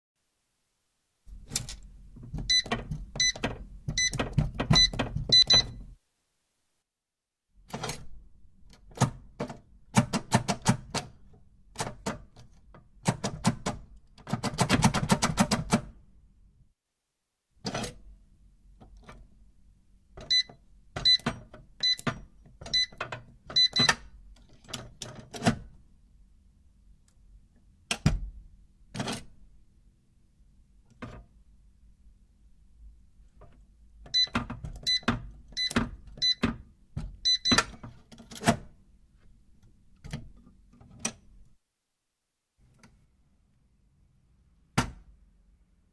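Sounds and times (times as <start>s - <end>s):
keypad button beeps: 2.4s - 5.9s, 20.2s - 24.0s, 34.1s - 36.5s, 37.2s - 37.7s.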